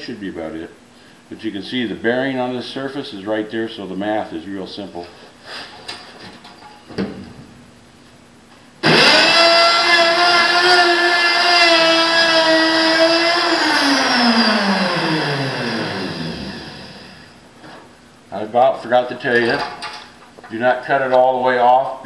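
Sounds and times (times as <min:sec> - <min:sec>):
router winding down: 0:08.8 - 0:17.3
router high-pitched whine: 0:08.8 - 0:17.4.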